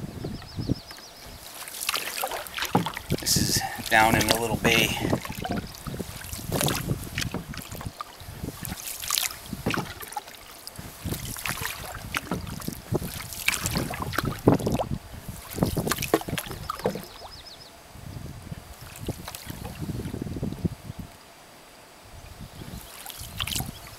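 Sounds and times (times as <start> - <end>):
paddle splashing through water: 1.3 - 17.5, 18.8 - 20.2, 22.7 - 23.9
water dripping: 1.4 - 8.0.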